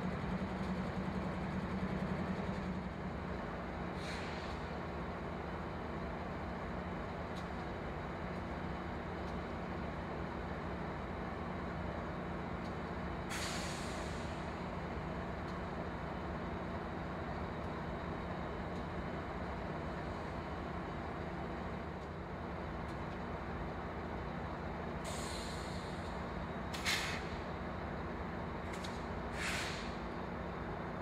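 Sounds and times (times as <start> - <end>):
diesel locomotive idling: 0.0 - 31.0
air brake hiss: 3.9 - 4.7, 13.3 - 14.6, 25.0 - 26.1, 26.7 - 27.4, 29.3 - 30.0.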